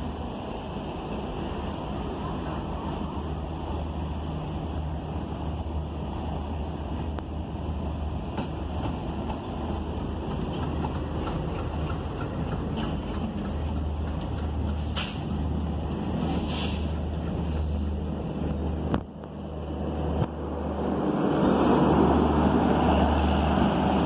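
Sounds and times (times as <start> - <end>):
diesel locomotive engine drone: 0.0 - 24.0
train rumble: 0.0 - 24.0.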